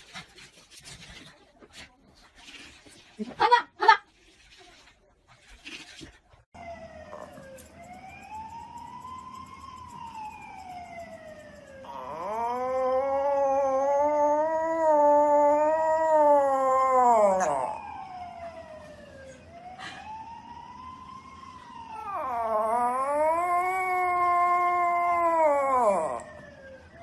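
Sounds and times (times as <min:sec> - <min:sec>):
animal howling: 0:11.8 - 0:18.2, 0:21.9 - 0:26.5.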